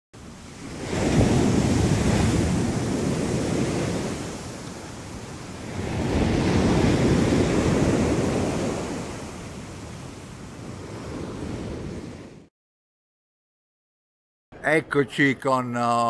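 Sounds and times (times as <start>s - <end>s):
ocean surf rushing: 0.2s - 12.5s.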